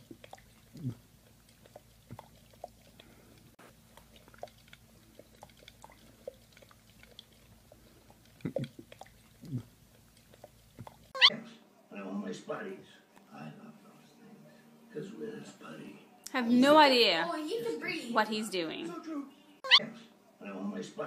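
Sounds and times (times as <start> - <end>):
dog chewing: 0.0 - 11.3
teeth clicking against glass: 8.2 - 9.6.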